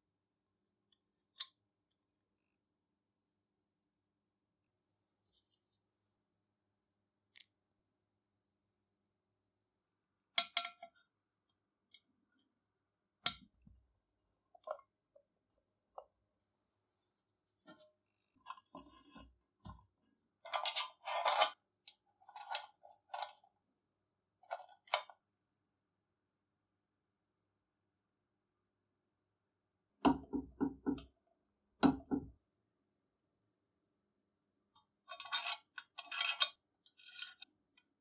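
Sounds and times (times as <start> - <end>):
metal parts rattling: 35.1 - 37.4
small metal parts clinking: 35.1 - 37.5.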